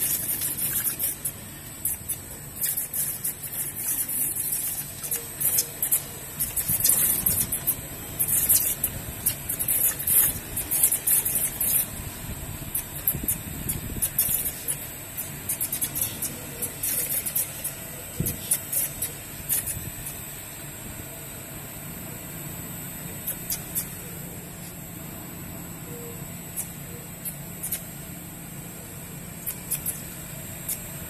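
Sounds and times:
sharp crackling clicks: 0.0s - 12.0s, 12.7s - 20.3s, 23.2s - 24.0s, 26.5s - 28.0s, 29.4s - 31.0s
machine hum with high whine: 0.0s - 31.0s.

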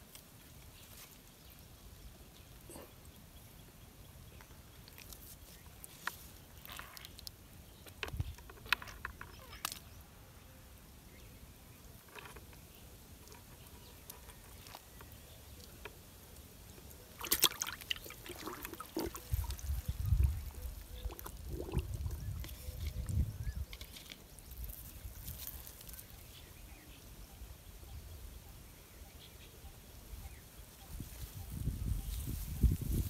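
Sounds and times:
water splashing in a bucket: 16.8s - 23.2s.

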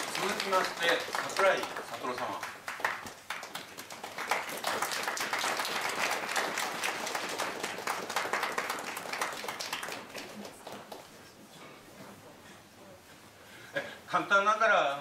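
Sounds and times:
group applauding: 0.0s - 11.4s.

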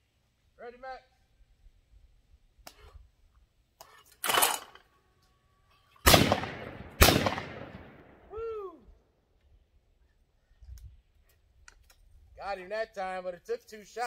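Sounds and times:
shotgun shots with echo: 6.1s - 8.2s.

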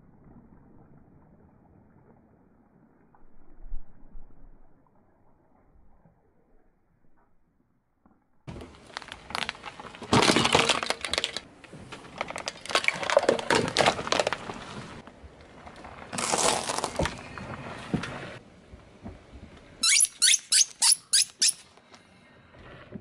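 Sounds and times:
hard plastic crunching under car tyre: 8.5s - 18.4s.

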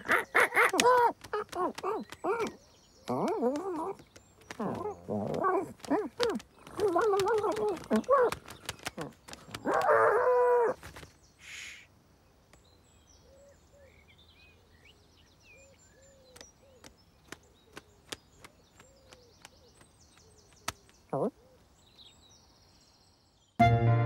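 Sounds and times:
cartoon bird squawk: 0.0s - 1.2s
faint distant birdsong: 0.0s - 23.6s
small ticks: 0.6s - 9.9s, 16.3s - 21.0s.

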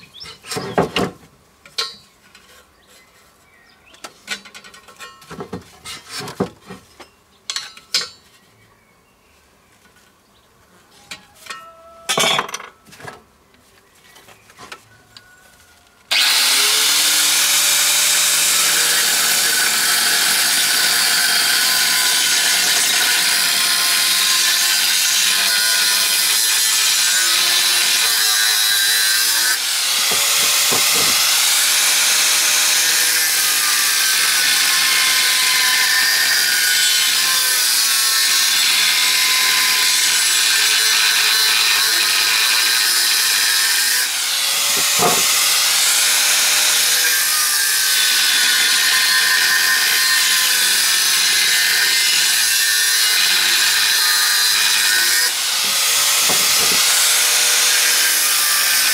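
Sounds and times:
power tool motor under load: 16.1s - 23.6s, 29.4s - 32.9s, 44.0s - 46.9s, 55.2s - 58.2s.

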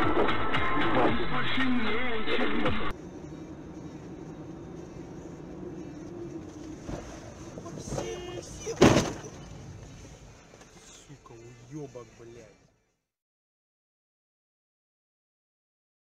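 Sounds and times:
engine and road hum: 0.0s - 13.0s
loud thump: 7.9s - 9.4s.

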